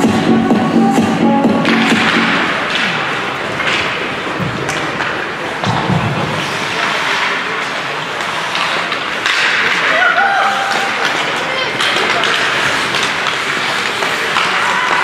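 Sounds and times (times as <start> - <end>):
music from arena speakers: 0.0 - 2.8
hockey sticks and puck clacking: 1.3 - 15.0
skates scraping on ice: 1.5 - 15.0.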